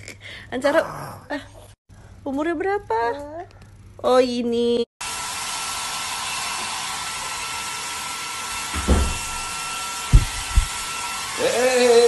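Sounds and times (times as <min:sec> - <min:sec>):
dull low thumps: 0:08.8 - 0:09.5, 0:10.1 - 0:10.9
rushing blowing noise: 0:10.1 - 0:10.9.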